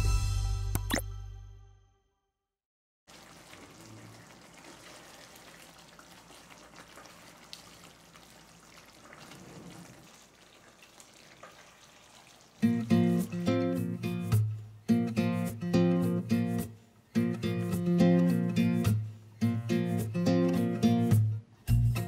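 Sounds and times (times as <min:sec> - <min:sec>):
curry simmering in a pan: 0:03.1 - 0:13.5.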